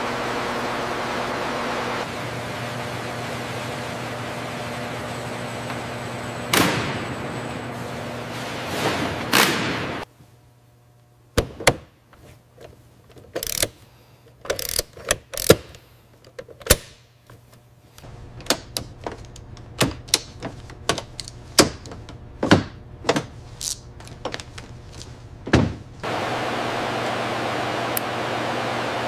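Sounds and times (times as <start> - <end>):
mechanical clicks and knocks: 13.1 - 13.7, 14.4 - 15.7.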